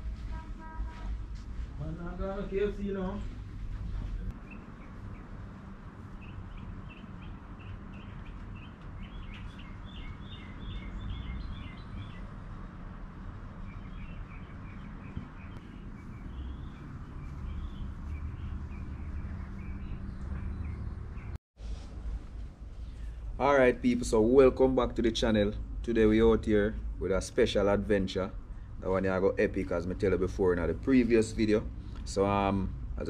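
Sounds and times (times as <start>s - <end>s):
steady low rumble: 0.0s - 33.0s
small birds chirping: 4.3s - 21.4s.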